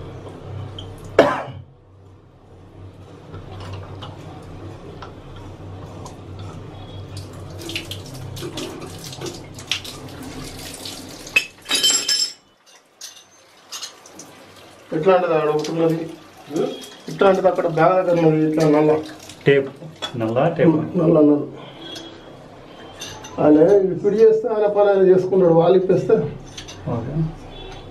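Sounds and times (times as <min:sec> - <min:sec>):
water splashing from pipe: 0:07.0 - 0:11.7, 0:13.6 - 0:20.1.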